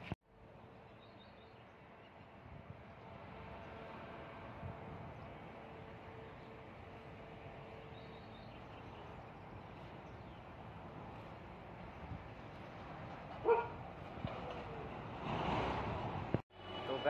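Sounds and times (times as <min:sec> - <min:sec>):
dog barking: 0:13.4 - 0:13.8.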